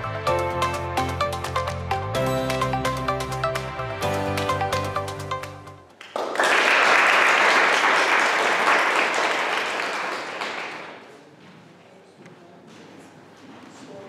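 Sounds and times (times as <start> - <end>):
electronic background music: 0.0 - 5.8
audience applauding: 5.9 - 11.1.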